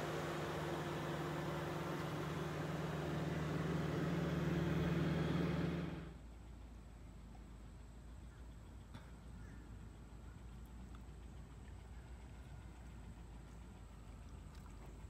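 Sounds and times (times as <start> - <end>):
vehicle engine running: 0.0 - 8.8.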